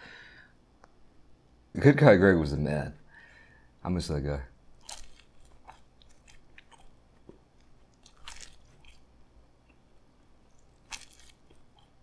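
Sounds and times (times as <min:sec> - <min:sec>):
chewing crunchy pizza crust: 0:04.7 - 0:12.0.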